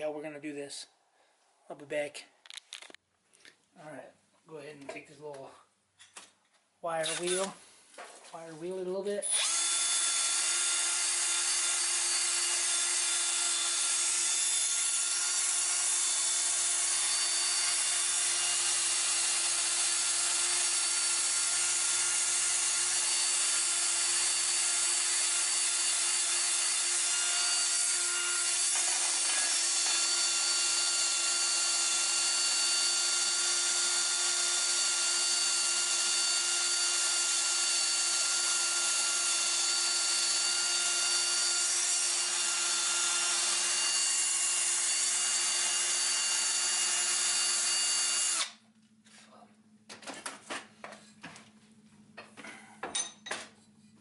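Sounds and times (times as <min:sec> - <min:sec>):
drill motor whine: 0:09.3 - 0:48.6.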